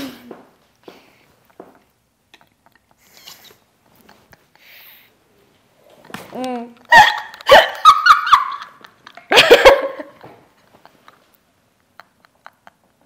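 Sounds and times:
faint breaths and clicks: 0:00.7 - 0:06.9
women laughing: 0:06.9 - 0:11.3.

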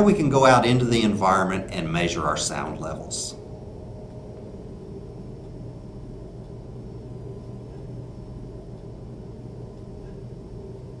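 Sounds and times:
faint steady tones: 0:00.0 - 0:11.0
low hum and rumble: 0:00.0 - 0:11.0.

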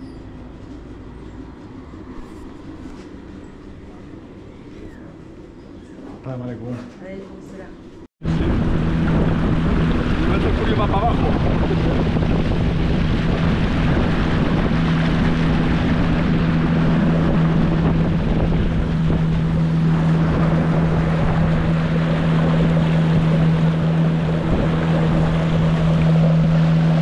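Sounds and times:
boat motor humming: 0:07.8 - 0:27.0
water rushing along hull: 0:08.2 - 0:27.0
wind buffeting microphone: 0:08.2 - 0:27.0.

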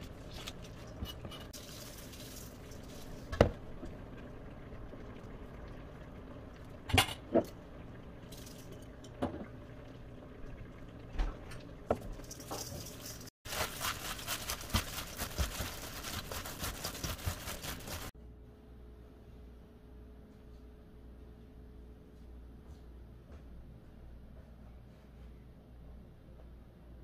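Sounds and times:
salad greens rustling in bowl: 0:12.2 - 0:18.1.

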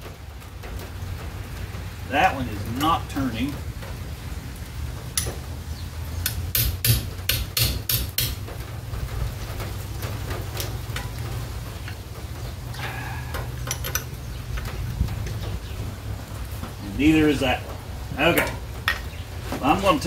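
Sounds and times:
wrench knocking on metal fittings: 0:06.2 - 0:08.5.

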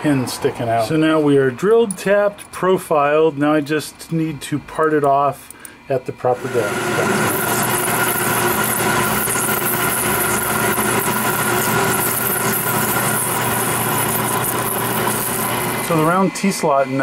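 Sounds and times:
lathe drive humming: 0:05.6 - 0:17.0
lathe tool cutting steel: 0:06.3 - 0:17.0.

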